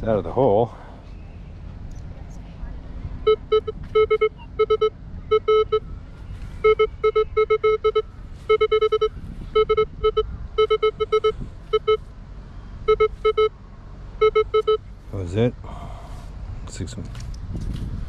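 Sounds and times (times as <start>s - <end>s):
metal detector beeps: 3.3s - 5.9s, 6.6s - 12.1s, 12.9s - 13.5s, 14.2s - 14.8s.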